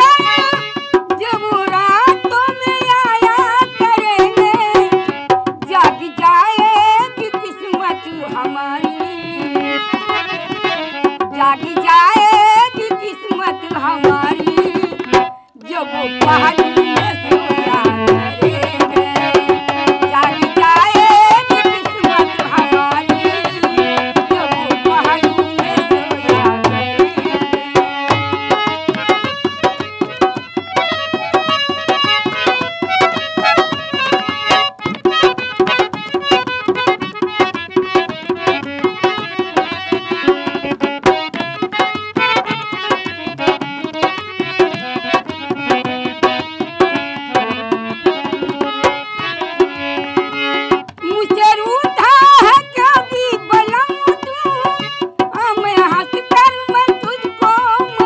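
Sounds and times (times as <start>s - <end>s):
hand drum rhythm: 0.0s - 58.0s
keyboard melody notes: 0.0s - 58.0s.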